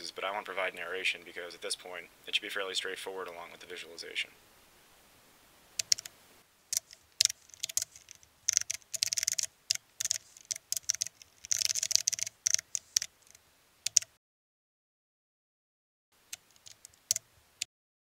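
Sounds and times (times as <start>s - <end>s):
computer keyboard typing: 5.8s - 6.1s, 6.7s - 14.1s, 16.3s - 17.2s.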